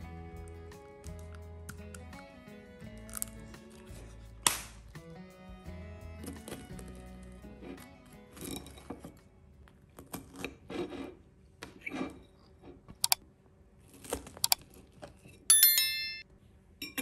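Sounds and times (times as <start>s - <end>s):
fork scraping on ceramic plate: 10.2s - 11.2s, 11.8s - 12.8s
bright ringing chime: 15.5s - 16.2s.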